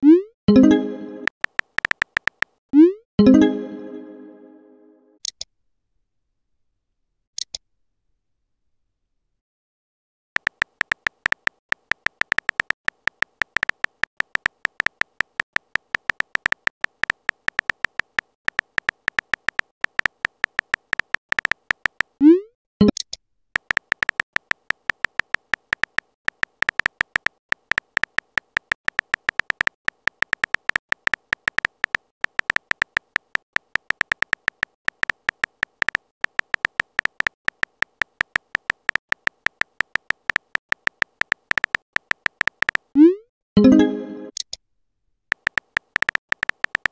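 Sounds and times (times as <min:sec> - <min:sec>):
keyboard typing ticks: 0:00.0 - 0:03.4, 0:10.4 - 0:22.2, 0:22.8 - 0:43.0, 0:45.3 - 0:46.9.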